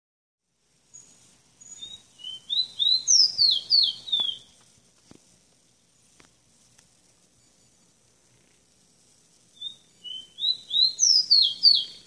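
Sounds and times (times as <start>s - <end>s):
finch singing whistled notes: 0.9s - 4.6s, 9.5s - 12.0s.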